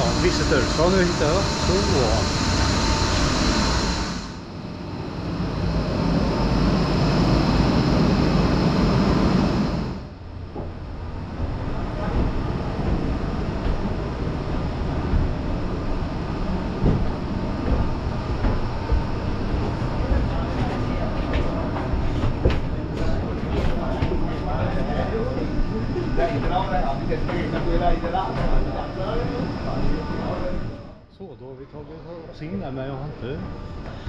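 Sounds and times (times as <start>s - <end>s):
factory machinery rumbling: 0.0s - 34.0s
footsteps on wooden stairs: 10.5s - 15.5s, 16.5s - 24.5s.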